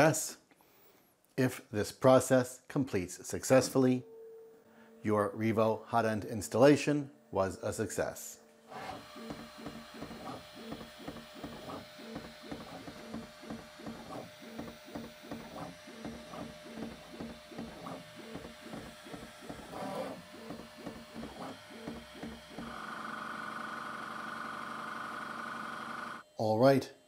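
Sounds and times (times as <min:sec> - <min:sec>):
stepper motors moving printer head: 0:08.6 - 0:23.8.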